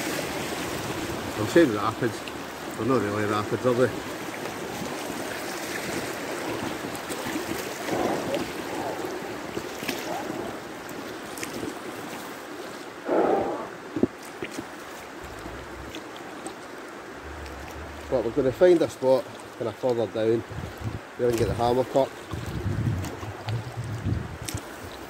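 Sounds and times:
river water rushing: 0:00.0 - 0:22.6
water splashes: 0:00.0 - 0:25.0.

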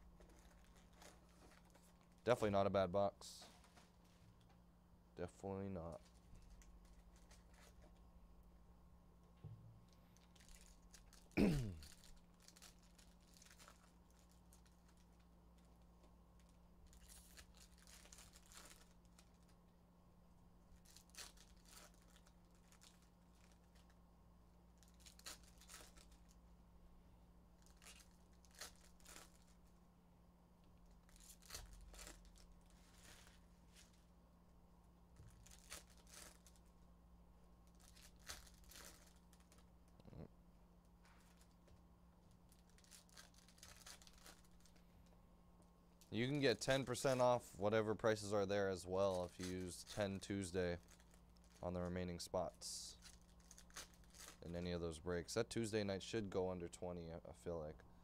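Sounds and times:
wrappers tearing and crinkling: 0:00.2 - 0:02.2, 0:05.9 - 0:07.8, 0:10.2 - 0:15.7, 0:16.4 - 0:19.6, 0:20.8 - 0:24.0, 0:24.8 - 0:26.4, 0:27.6 - 0:29.8, 0:30.8 - 0:34.0, 0:35.2 - 0:36.7, 0:37.6 - 0:40.2, 0:42.5 - 0:44.8, 0:49.0 - 0:51.6, 0:52.9 - 0:54.4.

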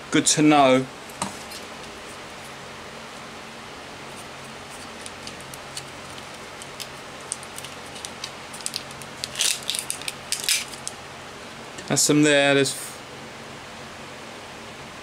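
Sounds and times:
faint steady hum: 0:00.0 - 0:15.0
crinkling rustle: 0:04.1 - 0:11.0.

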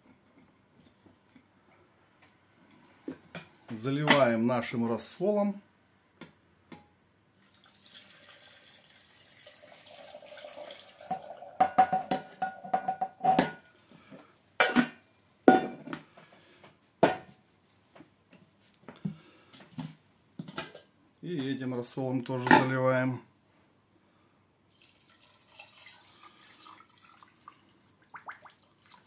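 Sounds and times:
liquid pouring into glass jar: 0:07.3 - 0:11.6, 0:24.7 - 0:29.0.

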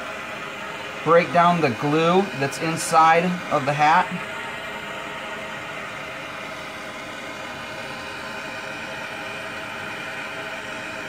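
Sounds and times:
gas blowtorch hissing: 0:00.0 - 0:11.0.

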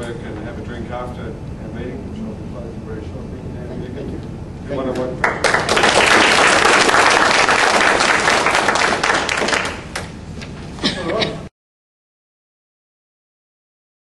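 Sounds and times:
audience applauding: 0:05.2 - 0:10.1.

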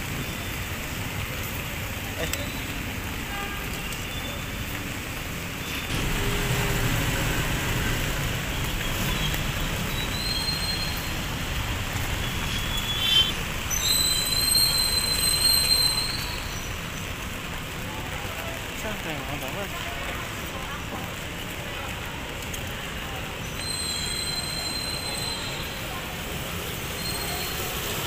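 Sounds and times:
vehicle engine rumble: 0:00.0 - 0:19.1
tyres on wet road: 0:00.0 - 0:28.0.

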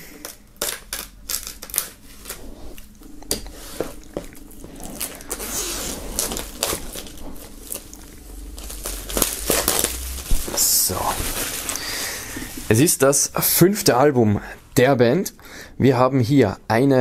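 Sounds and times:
plastic wrap crinkling: 0:00.0 - 0:13.6
knife slitting plastic wrap: 0:00.2 - 0:02.4, 0:04.8 - 0:12.8.

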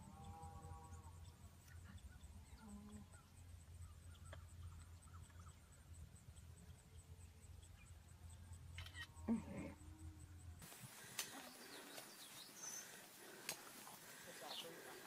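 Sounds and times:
faint bird chirps: 0:00.2 - 0:09.9, 0:11.3 - 0:13.4.

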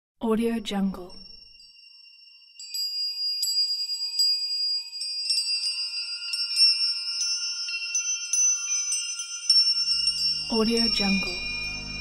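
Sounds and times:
ringing bell-like chimes: 0:01.1 - 0:12.0.

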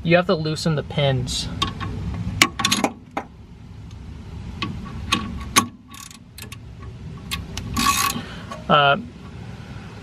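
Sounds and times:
ratchet clicking: 0:05.5 - 0:06.6, 0:07.2 - 0:08.2.

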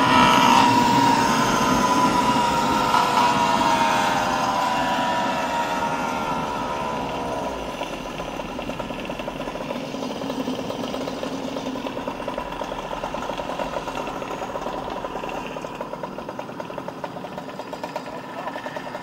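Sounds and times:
small two-stroke engine idling: 0:00.0 - 0:19.0.

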